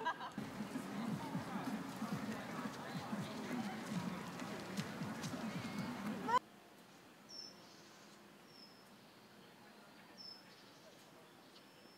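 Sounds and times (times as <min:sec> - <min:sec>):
distant voices: 0:00.4 - 0:06.4.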